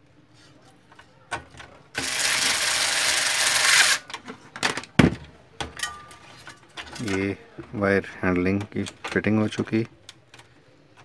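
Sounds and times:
clicks and knocks of plastic parts: 0:04.0 - 0:11.0.

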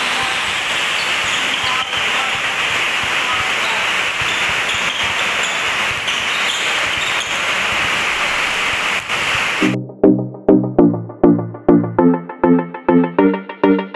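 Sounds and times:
heavy rain on metal roof: 0:00.0 - 0:09.8.

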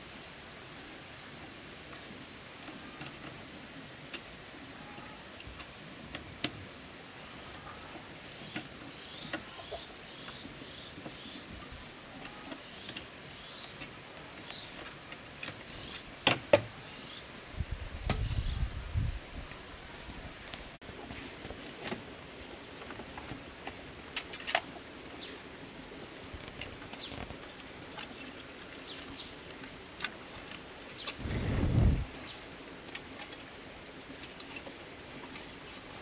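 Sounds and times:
rumbling rustle of handling: 0:30.2 - 0:32.3.

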